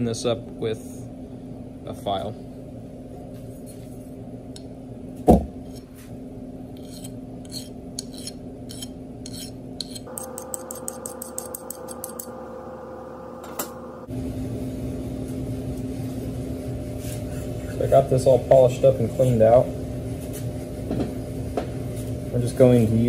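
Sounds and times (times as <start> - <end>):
hand file scraping steel: 6.8 - 12.3.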